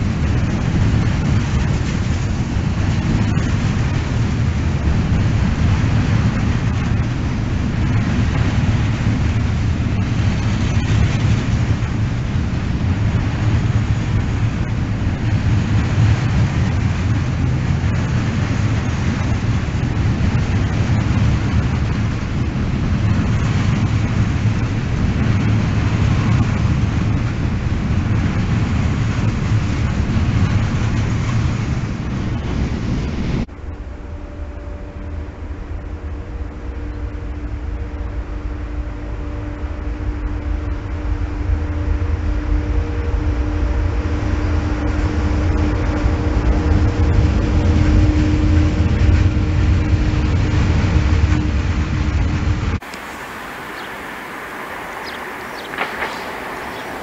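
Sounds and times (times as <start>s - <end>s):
train wheels rumbling on rails: 0.0s - 57.0s
faint clicks: 52.8s - 57.0s.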